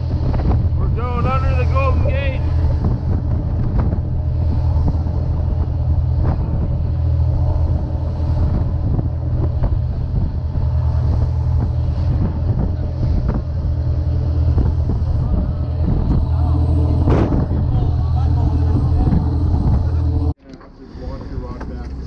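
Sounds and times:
wind on microphone: 0.0s - 20.4s
boat engine drone: 0.0s - 22.0s
water rushing past hull: 0.0s - 22.0s.

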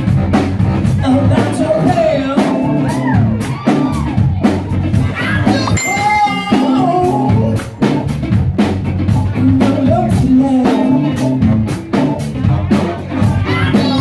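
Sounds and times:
bass: 0.0s - 14.0s
drum kit beat: 0.0s - 14.0s
person singing: 5.4s - 7.7s, 9.3s - 11.4s.

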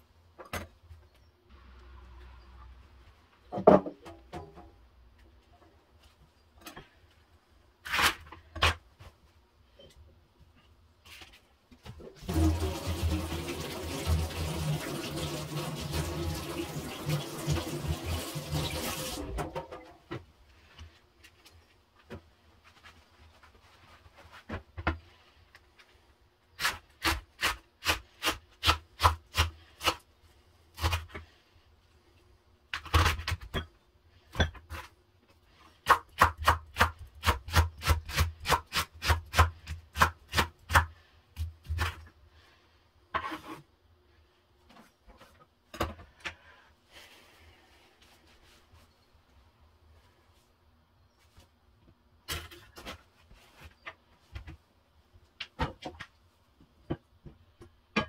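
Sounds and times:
water running: 12.2s - 19.6s.

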